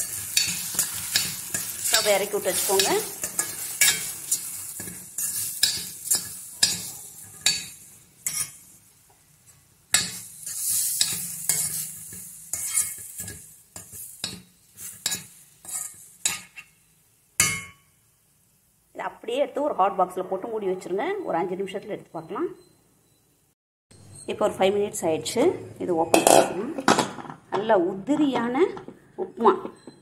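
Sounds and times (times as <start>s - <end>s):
metal spoon scraping steel pan: 0.0s - 8.7s, 10.0s - 16.8s, 26.1s - 27.0s
food sizzling: 0.0s - 19.0s.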